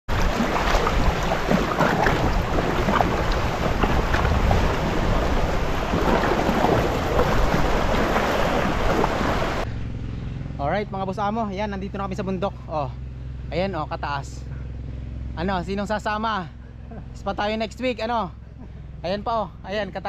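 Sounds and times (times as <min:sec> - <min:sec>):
sea water splashing: 0:00.0 - 0:09.7
wind buffeting microphone: 0:00.1 - 0:09.6.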